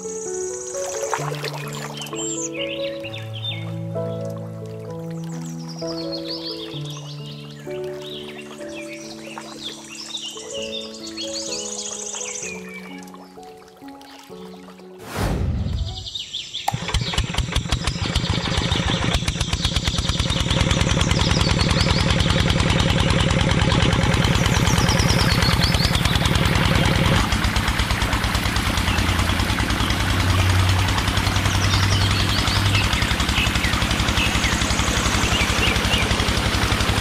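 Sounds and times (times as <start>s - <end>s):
short whoosh: 15.0s - 16.2s
small motor chugging: 16.7s - 37.0s.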